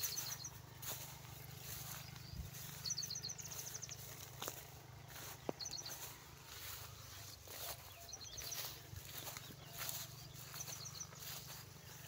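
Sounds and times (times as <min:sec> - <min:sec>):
faint outdoor background noise: 0:00.0 - 0:12.0
small bird chirping: 0:00.0 - 0:12.0.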